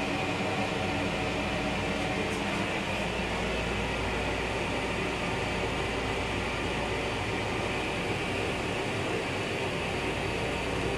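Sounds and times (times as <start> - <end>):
railcar hiss and hum: 0.0 - 10.9.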